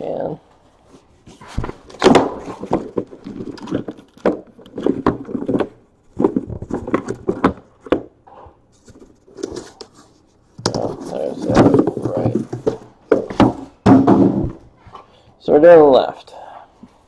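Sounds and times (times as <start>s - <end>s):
cardboard scraping: 0.8s - 14.6s
cardboard boxes knocking: 1.5s - 8.2s, 10.6s - 14.6s.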